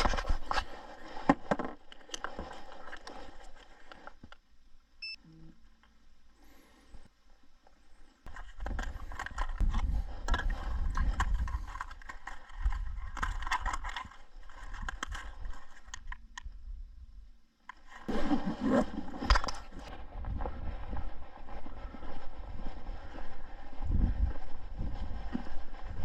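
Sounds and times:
footsteps scraping on frosty trail: 17.8s - 26.0s
low microphone rumble: 18.1s - 26.0s.

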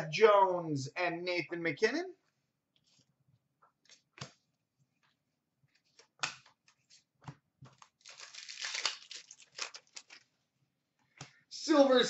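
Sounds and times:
foil wrapper tearing and crinkling: 7.9s - 10.3s.

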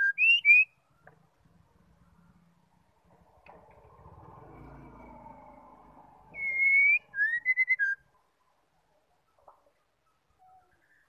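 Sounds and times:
bird singing whistled notes: 0.0s - 1.0s, 6.3s - 8.2s.

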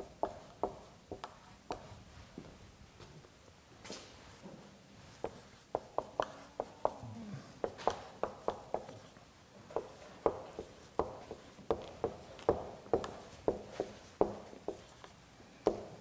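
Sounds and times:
marker squeaking on whiteboard: 5.1s - 7.0s, 7.6s - 16.0s.

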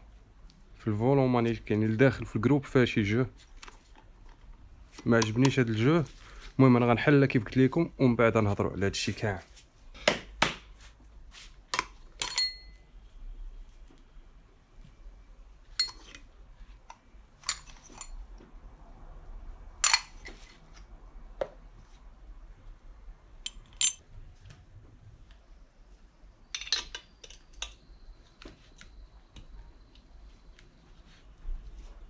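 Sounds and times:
metal tools clinking and knocking: 11.7s - 12.8s, 15.7s - 16.3s, 17.4s - 18.2s, 19.8s - 20.6s, 23.4s - 24.0s, 26.5s - 27.8s.

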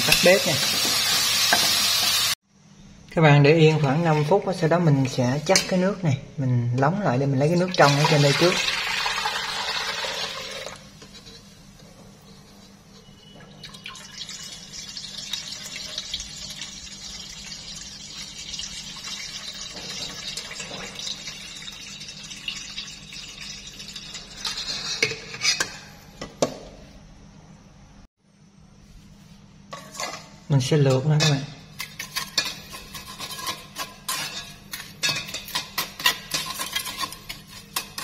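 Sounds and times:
water pouring into metal pot: 7.6s - 10.9s, 13.5s - 24.5s.

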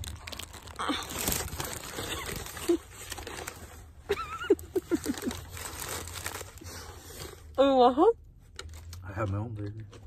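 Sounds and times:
paper wrapper crinkling: 0.0s - 7.6s.

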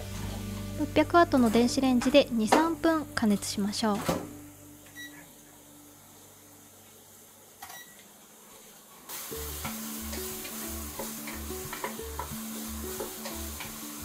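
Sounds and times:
background music with steady beat: 0.0s - 5.1s, 9.3s - 14.0s
microwave button beep: 4.9s - 5.2s, 7.7s - 8.0s
onion sizzling in oil: 8.3s - 14.0s.

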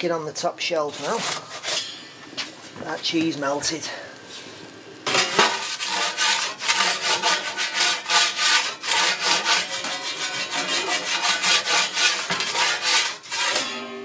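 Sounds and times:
metal peel scraping oven stone: 0.9s - 2.5s, 5.0s - 14.0s.

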